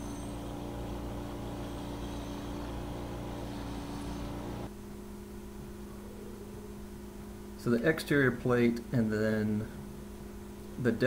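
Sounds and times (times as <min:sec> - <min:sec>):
bench grinder motor running: 0:00.0 - 0:04.7
wire wheel scrubbing metal: 0:00.0 - 0:04.7.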